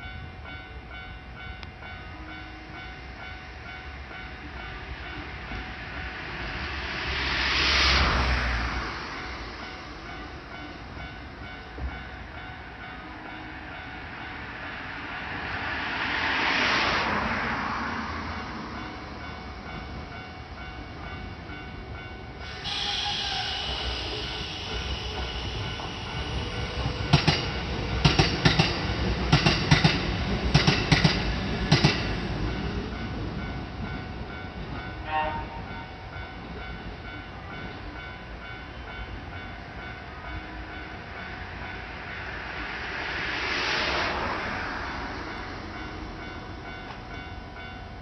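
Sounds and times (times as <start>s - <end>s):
passing noise: 5.0s - 10.7s, 13.7s - 19.8s, 40.5s - 47.7s
train wheels clacking over rail joints: 24.6s - 32.1s.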